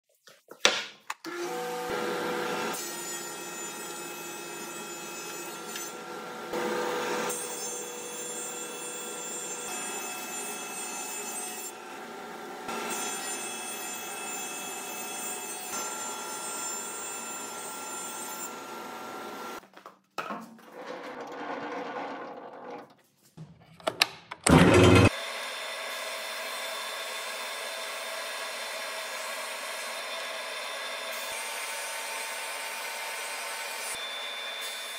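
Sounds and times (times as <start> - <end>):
planer whining: 24.4 - 31.7.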